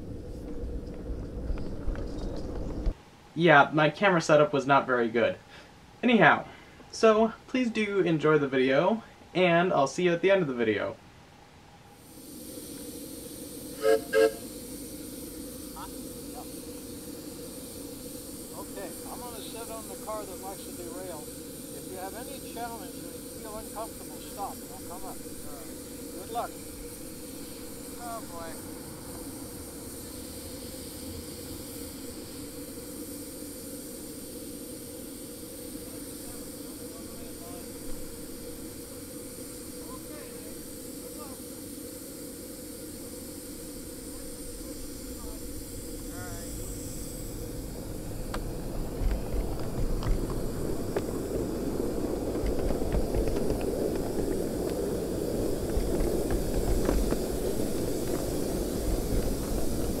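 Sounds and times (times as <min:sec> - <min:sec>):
wheels rumbling on track: 0:00.0 - 0:03.0, 0:47.3 - 1:00.0
steam hissing from locomotive: 0:00.0 - 0:10.9, 0:11.9 - 1:00.0.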